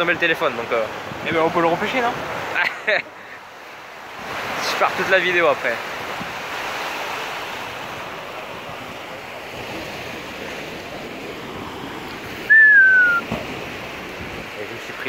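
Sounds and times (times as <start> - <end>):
fast-flowing water rushing: 0.0 - 15.0
wind on microphone: 7.6 - 14.6
high falling whistle: 12.5 - 13.3.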